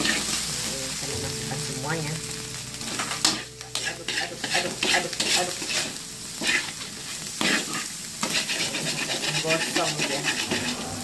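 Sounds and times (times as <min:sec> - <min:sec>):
metal spatula scraping wok: 0:00.0 - 0:00.4, 0:02.8 - 0:11.0
frying sizzle: 0:00.0 - 0:11.0.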